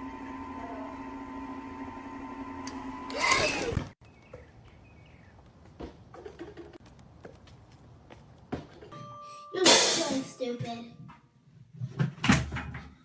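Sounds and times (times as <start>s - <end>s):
chocolate fountain motor hum: 0.0s - 3.8s.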